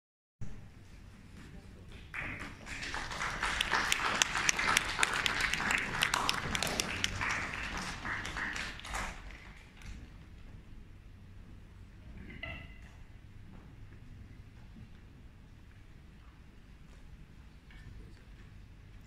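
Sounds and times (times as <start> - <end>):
audience applauding: 2.0 - 10.0.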